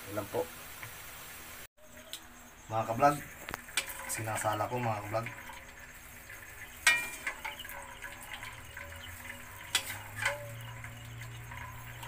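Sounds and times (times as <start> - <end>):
water dripping and trickling: 2.1 - 12.0
metal strainer clinking on steel bowl: 3.7 - 12.0.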